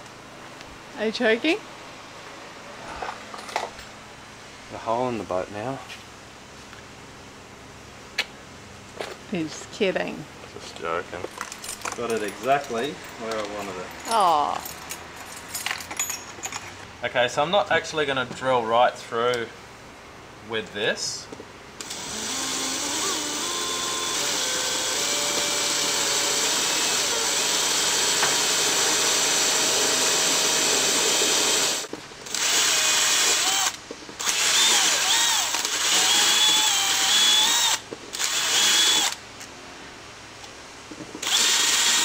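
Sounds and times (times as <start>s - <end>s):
cordless drill boring into fiberglass: 21.8s - 39.2s, 41.2s - 42.0s.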